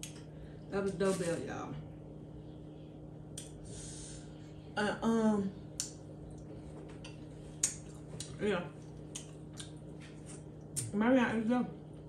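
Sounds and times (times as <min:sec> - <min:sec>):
low electrical hum: 0:00.0 - 0:12.0
wet mouth clicks chewing: 0:05.8 - 0:10.0.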